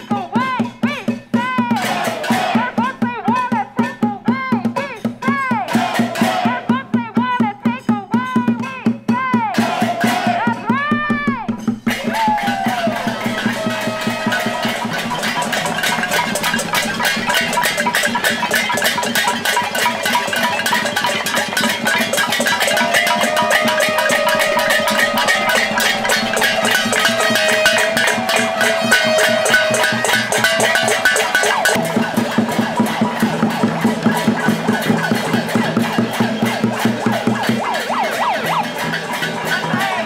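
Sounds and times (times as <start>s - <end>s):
pot lids beaten with spoons: 11.6s - 40.0s
held tone: 12.9s - 33.6s.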